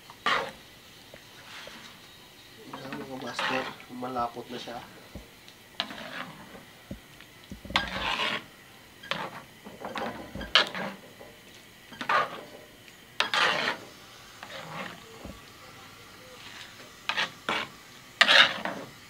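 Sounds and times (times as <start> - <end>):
metal ladle scraping a pan: 0.2 - 0.6, 1.4 - 2.0, 2.7 - 3.8, 5.8 - 6.6, 7.6 - 11.2, 11.9 - 12.6, 13.2 - 15.5, 16.4 - 18.9.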